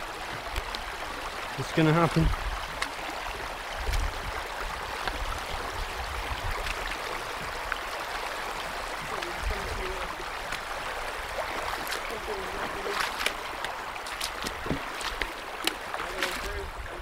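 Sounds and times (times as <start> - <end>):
river running over rocks: 0.0 - 17.0.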